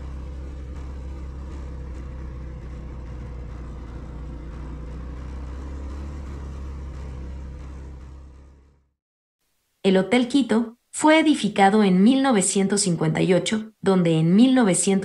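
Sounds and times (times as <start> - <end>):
motorcycle engine running: 0.0 - 9.0.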